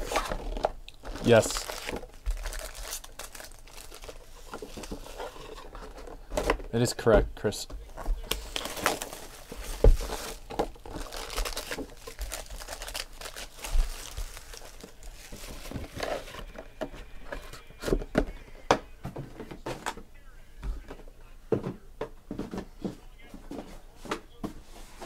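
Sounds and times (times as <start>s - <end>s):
foil card packs crinkling: 0.0s - 6.9s, 8.1s - 16.5s.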